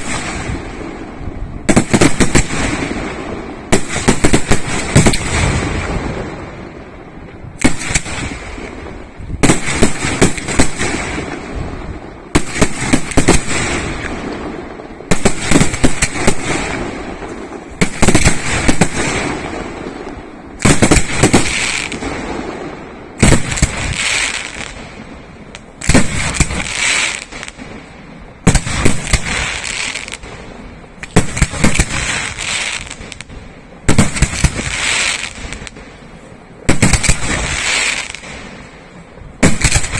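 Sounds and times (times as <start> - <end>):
firework shells bursting: 15.1 - 27.8, 36.7 - 38.6, 39.4 - 39.9.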